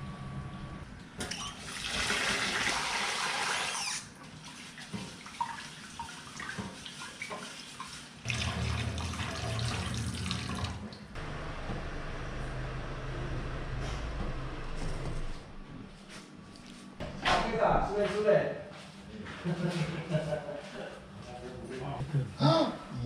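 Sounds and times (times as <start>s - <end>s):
water poured into sink: 1.3s - 11.0s
tap water running into metal pot: 8.3s - 10.8s.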